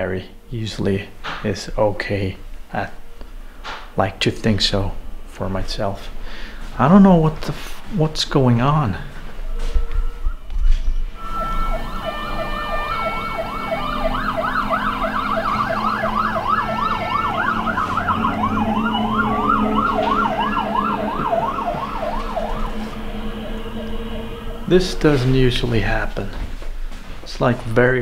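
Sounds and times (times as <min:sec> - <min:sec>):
rising siren wail: 0:08.6 - 0:26.6
emergency vehicle siren yelping: 0:09.0 - 0:26.1.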